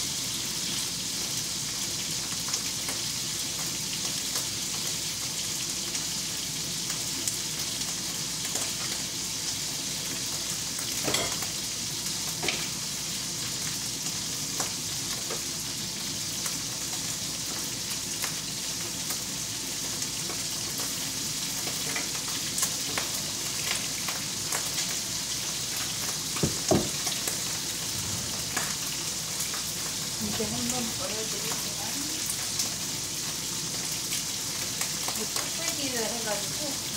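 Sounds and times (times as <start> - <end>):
food sizzling in a frying pan: 0.0 - 36.9
kitchen utensils knocking: 11.0 - 11.4.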